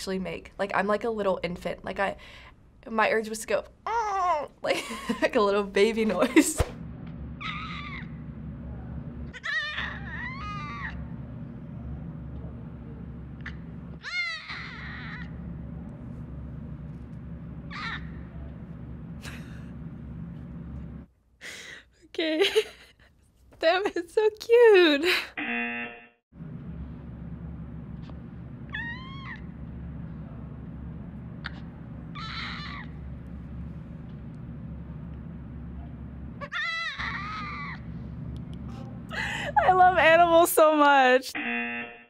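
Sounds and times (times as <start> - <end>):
steady low hum: 0.0 - 23.2, 26.4 - 41.1.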